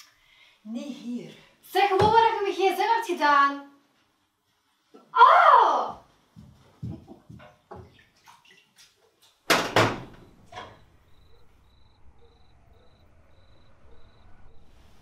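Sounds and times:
light footsteps: 5.9s - 8.1s
door slamming: 9.5s - 10.9s.

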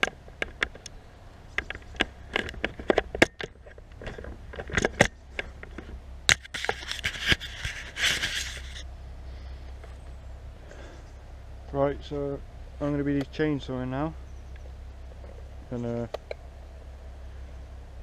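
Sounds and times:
handling clicks and knocks: 0.0s - 8.6s.

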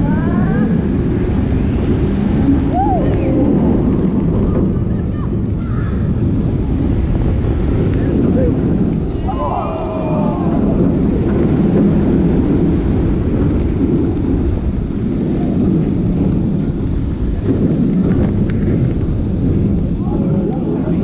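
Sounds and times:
roller coaster rumbling on track: 0.0s - 21.0s
wind buffeting microphone: 0.0s - 21.0s.

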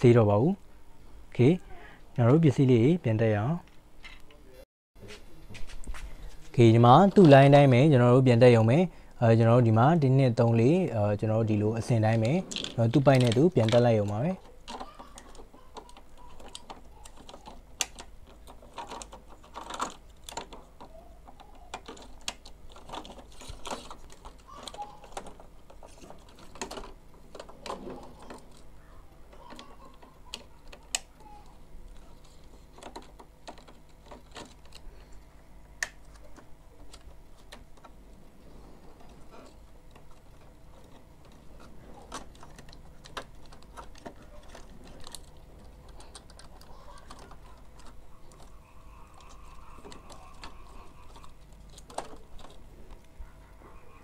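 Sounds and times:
small plastic parts clicking: 11.8s - 53.2s.

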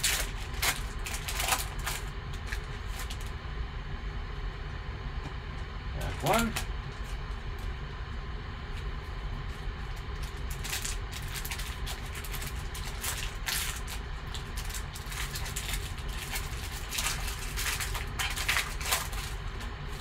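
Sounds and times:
foil wrapper crinkling: 0.0s - 3.4s, 9.5s - 20.0s
steady low hum: 0.0s - 20.0s.

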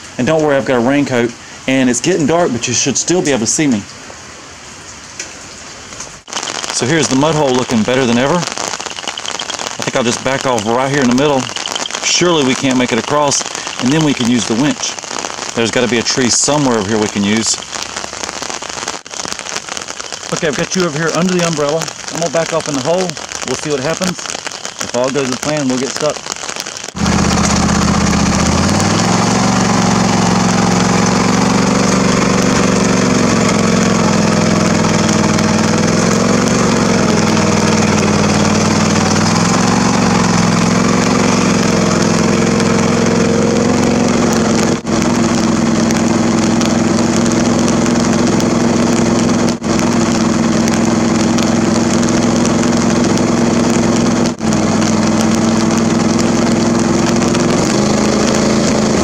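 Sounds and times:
lawn tractor engine running: 27.0s - 59.0s.

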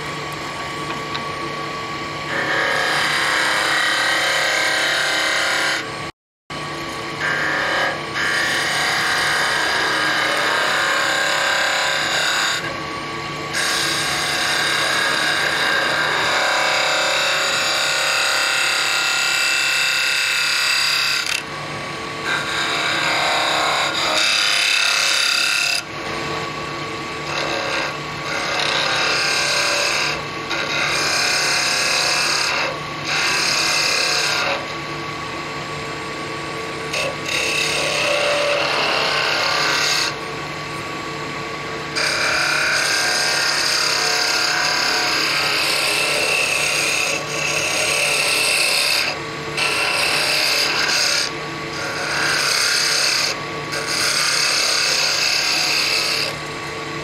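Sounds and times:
wood lathe humming: 2.1s - 5.9s, 7.2s - 12.8s, 13.4s - 21.6s, 22.2s - 34.8s, 36.4s - 40.6s, 41.9s - 56.7s
turning tool scraping wood: 27.3s - 34.7s, 36.9s - 40.2s, 42.0s - 56.4s.

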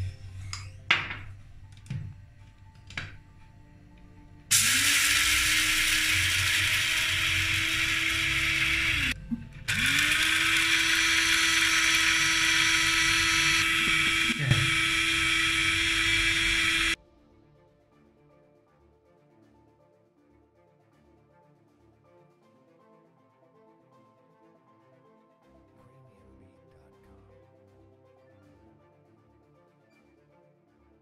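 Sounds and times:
electric grinder whining: 4.1s - 17.0s.

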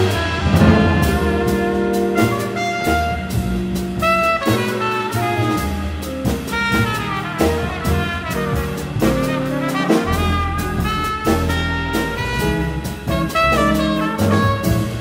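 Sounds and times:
drum kit with cymbals: 0.0s - 15.0s
jazz big band playing: 0.0s - 15.0s.

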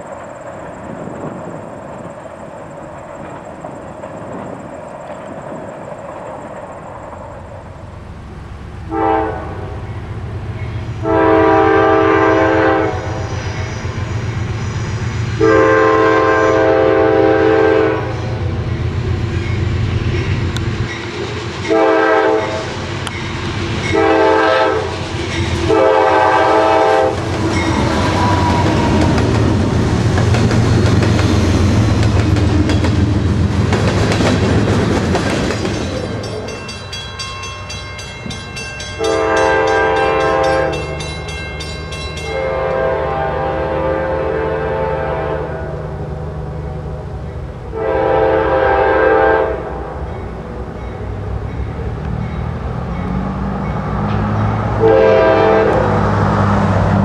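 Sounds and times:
train air horn blasts: 8.8s - 9.9s, 10.9s - 13.4s, 15.3s - 18.4s, 21.7s - 22.8s, 23.9s - 25.0s, 25.6s - 29.2s, 39.0s - 41.0s, 42.2s - 45.9s, 47.7s - 49.9s, 54.7s - 56.0s
distant train horn: 8.8s - 13.4s, 15.2s - 18.6s, 21.7s - 22.8s, 23.8s - 29.4s, 38.9s - 46.1s, 47.7s - 56.4s
wheels clattering over rails: 27.1s - 39.0s.

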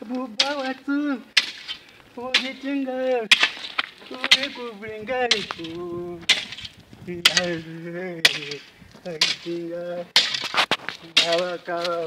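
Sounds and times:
hoe chopping dry soil: 0.3s - 12.0s
man chanting: 7.1s - 10.2s, 11.0s - 12.0s.

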